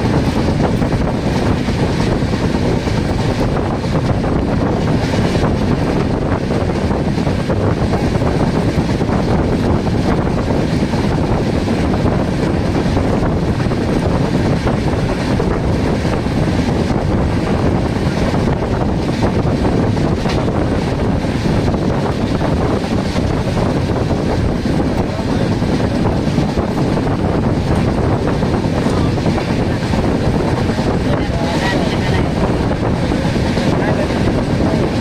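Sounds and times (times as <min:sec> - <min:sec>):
train running on track: 0:00.0 - 0:35.0
wind buffeting microphone: 0:00.0 - 0:35.0.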